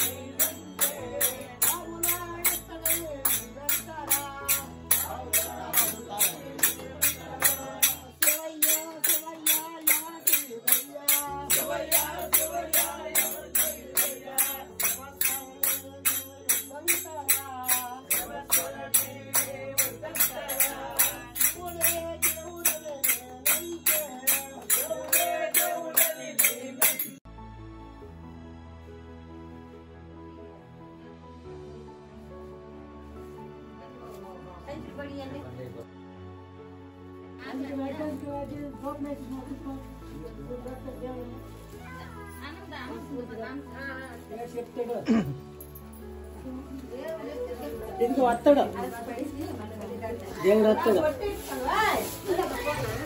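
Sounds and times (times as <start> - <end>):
small hand cymbals: 0.0 - 27.2
men singing devotional song: 0.0 - 27.3
soft instrumental music: 0.0 - 53.0.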